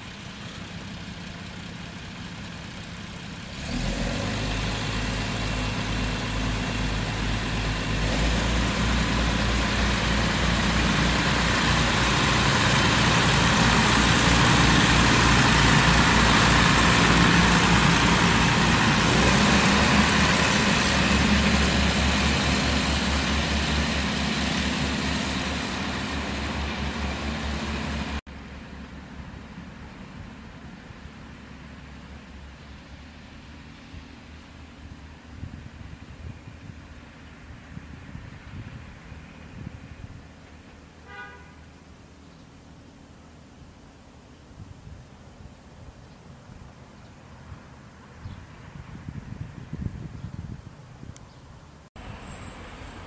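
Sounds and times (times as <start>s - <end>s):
diesel railcar engine throb: 4.5s - 32.4s
train rolling noise: 5.7s - 30.5s.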